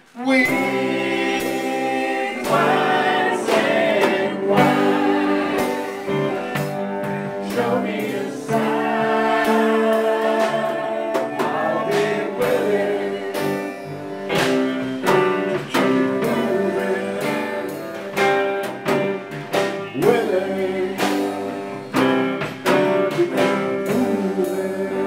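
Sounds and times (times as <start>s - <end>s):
small band playing live: 0.0s - 25.0s.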